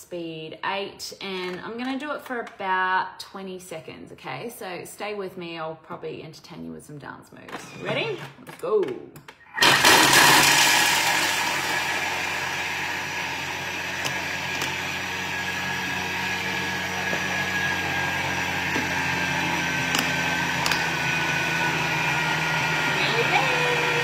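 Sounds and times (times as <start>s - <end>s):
blender running on high: 7.6s - 8.2s, 9.6s - 24.0s.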